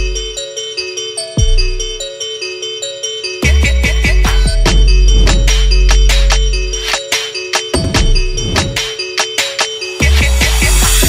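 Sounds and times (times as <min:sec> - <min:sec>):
deep bass: 0:00.0 - 0:00.4, 0:03.5 - 0:06.9, 0:07.8 - 0:08.8
repeated high notes: 0:00.0 - 0:11.0.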